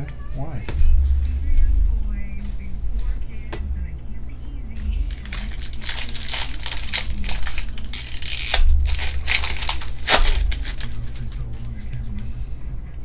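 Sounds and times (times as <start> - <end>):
foil wrapper tearing and crinkling: 5.0 - 12.0.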